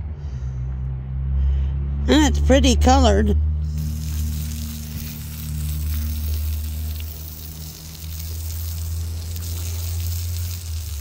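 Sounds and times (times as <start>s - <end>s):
hiss: 3.7s - 11.0s.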